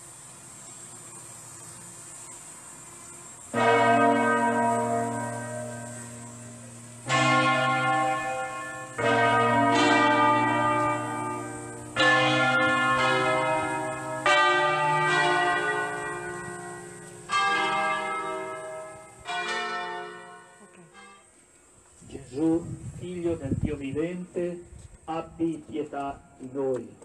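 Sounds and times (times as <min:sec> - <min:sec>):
church bells ringing: 0:03.5 - 0:21.4.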